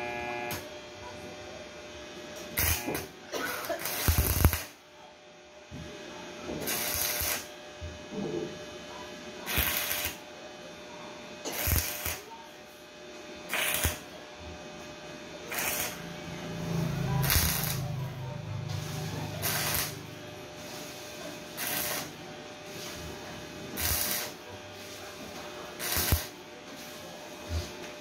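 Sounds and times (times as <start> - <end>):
arc welder bursts: 0.0 - 0.7, 2.4 - 4.8, 6.6 - 7.6, 9.4 - 10.3, 11.4 - 12.4, 13.4 - 14.1, 15.3 - 26.9.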